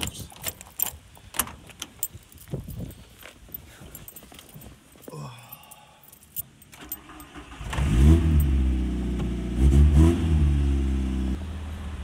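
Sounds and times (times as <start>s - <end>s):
keys jangling: 0.0s - 7.4s
car engine starting and revving: 6.8s - 12.0s.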